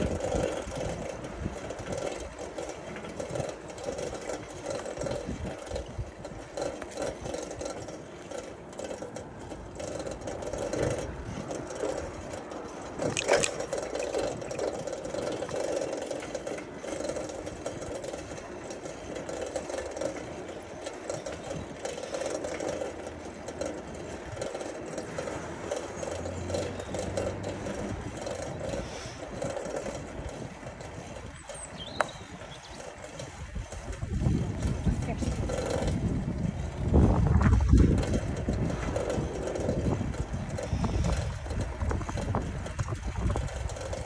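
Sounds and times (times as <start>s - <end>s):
bicycle rattling: 0.0s - 44.0s.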